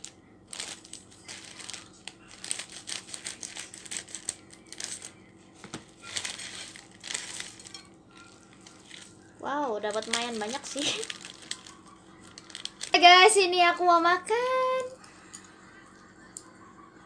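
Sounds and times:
foil sachet crinkling: 0.0s - 13.8s
chip pieces pouring out: 0.5s - 5.1s, 6.0s - 9.1s, 9.9s - 13.0s.

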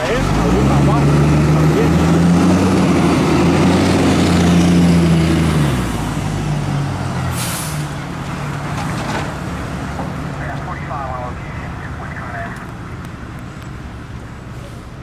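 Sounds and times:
air brakes hissing: 7.3s - 8.0s.

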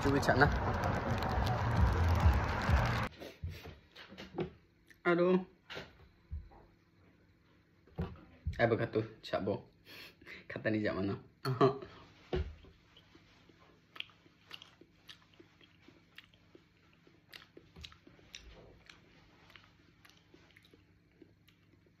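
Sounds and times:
faint chewing and biting: 12.7s - 22.0s.

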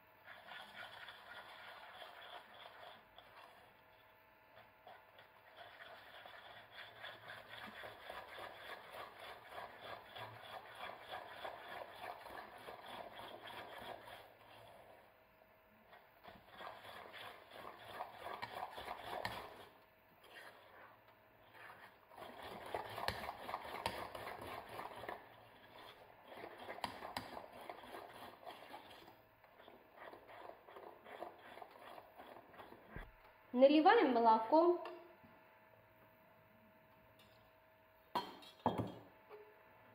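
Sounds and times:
metal spoon scraping saucepan: 0.2s - 3.6s, 5.3s - 15.0s, 16.2s - 32.8s.

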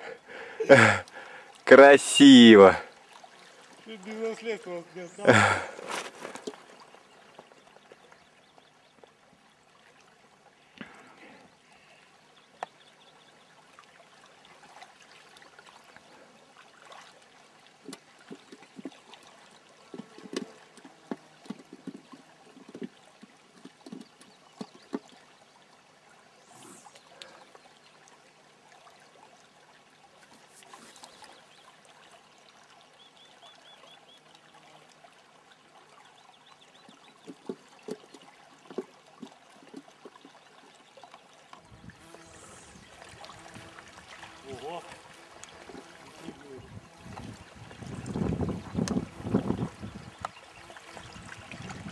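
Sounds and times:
river water trickling: 0.0s - 51.9s.

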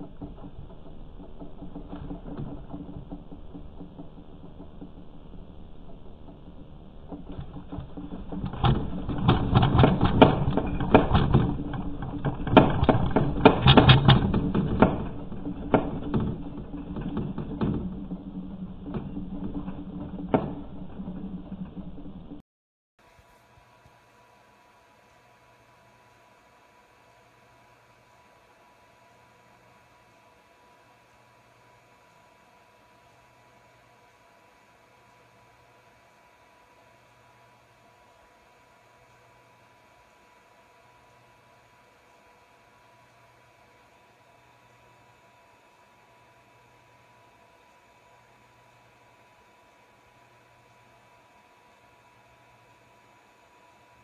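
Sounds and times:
earthquake low rumble: 0.0s - 22.4s
low hum: 0.0s - 22.4s
rapid rattling and knocking: 0.0s - 22.4s
faint steady hiss: 23.0s - 54.0s.

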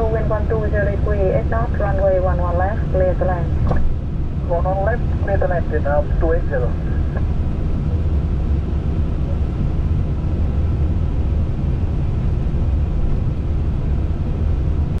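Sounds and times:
airflow: 0.0s - 7.7s.

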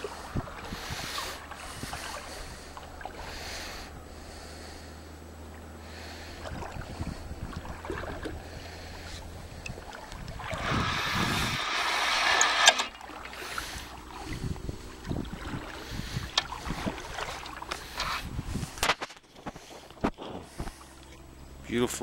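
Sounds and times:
wind on camera: 0.0s - 2.8s, 6.4s - 20.8s
loud rushing noise: 10.5s - 12.8s.

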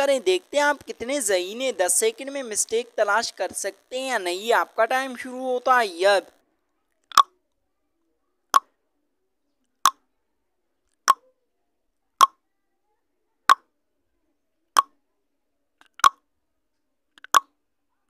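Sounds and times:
sharp timer ticks: 0.0s - 6.4s.

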